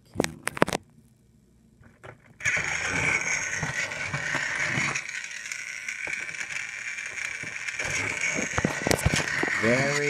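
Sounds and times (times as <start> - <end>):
toy train motor whine: 2.4 - 10.0
wheels clicking on plastic track: 2.4 - 10.0.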